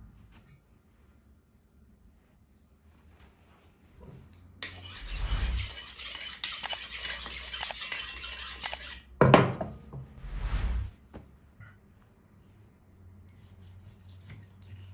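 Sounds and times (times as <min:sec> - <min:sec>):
knife scraping on honing steel: 0:04.6 - 0:09.0.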